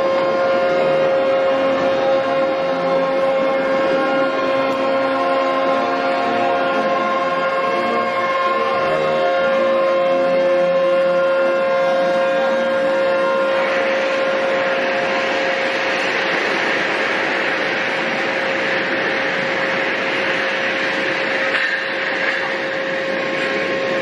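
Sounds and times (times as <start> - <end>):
ship's horn: 0.0 - 24.0.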